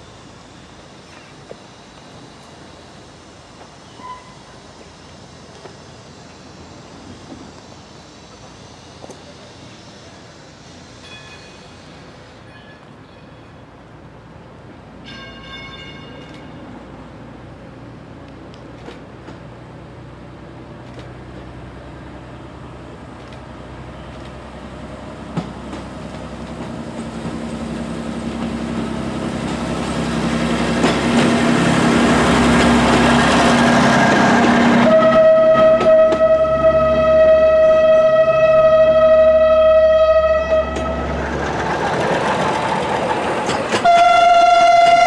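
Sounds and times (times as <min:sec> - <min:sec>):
diesel railcar engine hum: 0:00.0 - 0:45.0
train rolling noise: 0:00.0 - 0:45.0
train horn blast: 0:34.2 - 0:41.2, 0:43.8 - 0:45.0.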